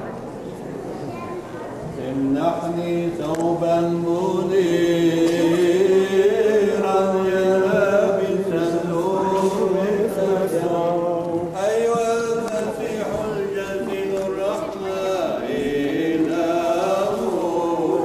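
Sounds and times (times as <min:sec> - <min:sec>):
voices chanting in unison: 0:03.9 - 0:18.0.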